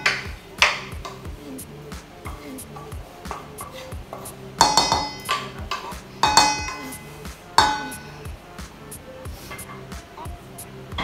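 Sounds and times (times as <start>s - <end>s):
soft background music: 0.0s - 11.0s
wooden spatula scraping paste: 2.3s - 6.4s
metal clanks ringing: 4.6s - 7.0s, 7.6s - 8.1s.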